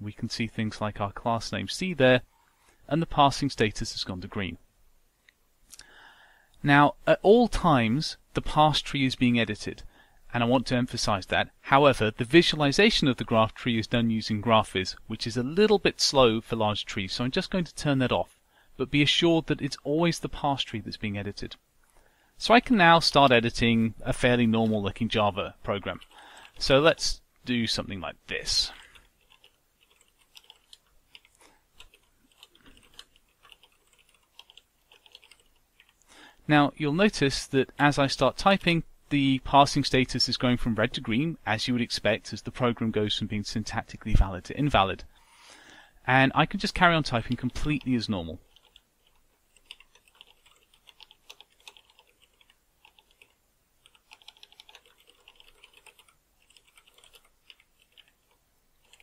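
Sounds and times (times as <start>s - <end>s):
keyboard typing: 28.8s - 36.0s, 47.2s - 59.0s.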